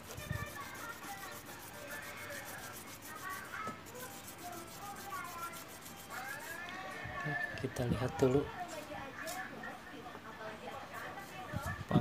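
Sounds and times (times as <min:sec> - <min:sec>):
stone rubbing on sandpaper: 0:00.0 - 0:06.7.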